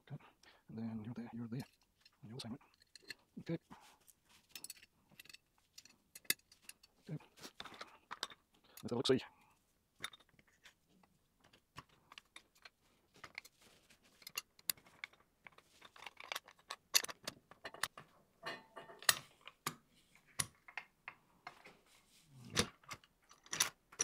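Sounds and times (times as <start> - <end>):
metal parts clicking and rattling: 1.5 - 3.3, 4.5 - 9.0, 11.5 - 19.6, 22.6 - 24.0.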